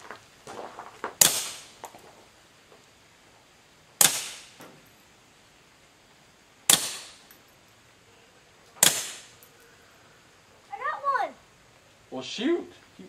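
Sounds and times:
suppressed pistol shots: 1.2s - 1.7s, 4.0s - 4.6s, 6.7s - 7.3s, 8.8s - 9.4s.

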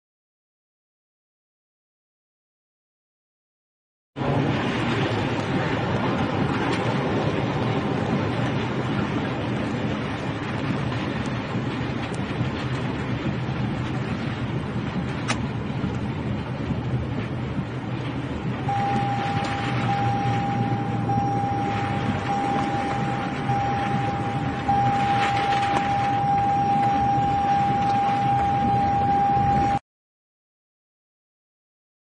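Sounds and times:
strong wind on microphone: 4.2s - 29.8s
steady single-pitched tone: 18.6s - 29.8s.

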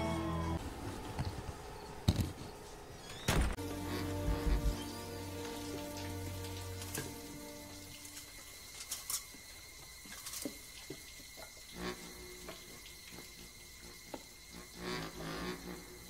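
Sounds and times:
water dripping and trickling: 3.7s - 14.9s.

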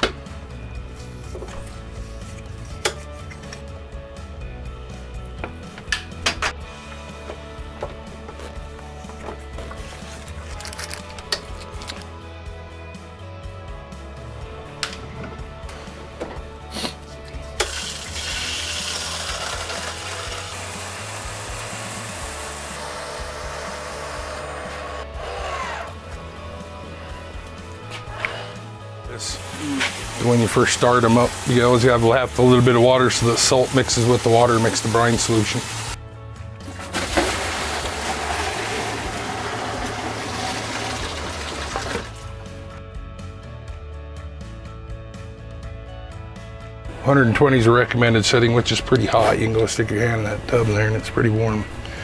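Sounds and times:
background music: 0.0s - 52.0s
water rushing hiss: 17.6s - 22.6s, 29.1s - 36.0s, 36.7s - 42.2s.

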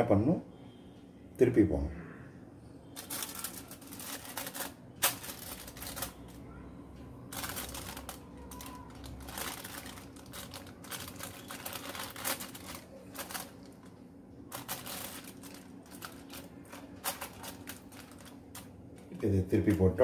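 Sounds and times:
aluminium foil crinkling: 2.9s - 6.5s, 7.2s - 20.0s.

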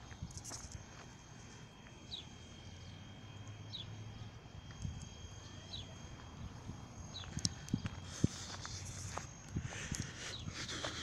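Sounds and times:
bird chirping: 2.0s - 4.4s, 5.0s - 7.9s.

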